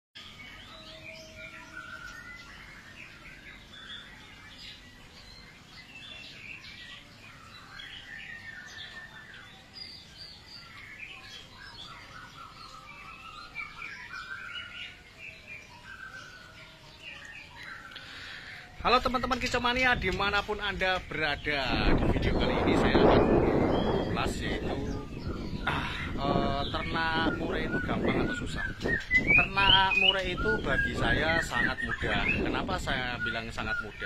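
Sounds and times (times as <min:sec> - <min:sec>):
birds chirping and whistling: 0:00.2 - 0:34.0.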